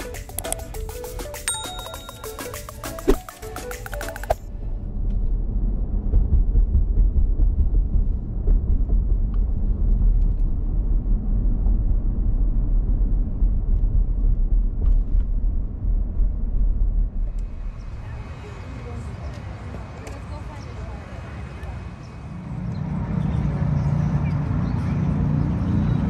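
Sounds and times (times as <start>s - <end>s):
road and engine rumble in car: 4.5s - 21.1s, 22.6s - 26.0s.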